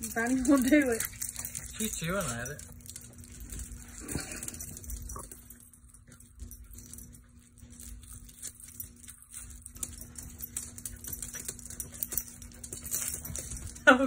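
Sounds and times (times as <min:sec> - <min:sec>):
dog paws on hardwood floor: 0:00.0 - 0:14.0
faint steady hum: 0:00.0 - 0:14.0.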